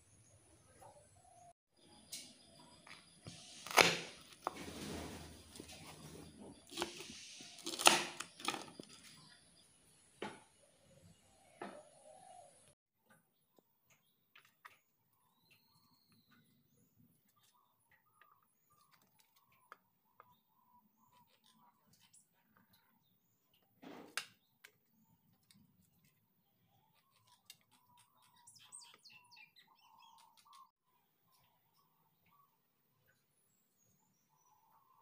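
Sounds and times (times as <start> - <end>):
faint bird chirps: 13.9 - 35.0.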